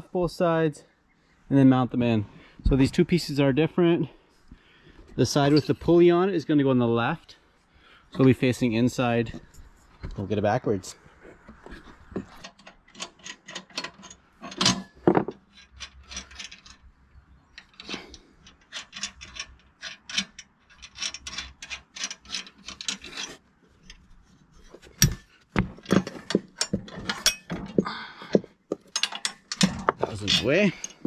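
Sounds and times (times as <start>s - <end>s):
metal clanks: 12.2s - 16.8s, 24.7s - 31.0s.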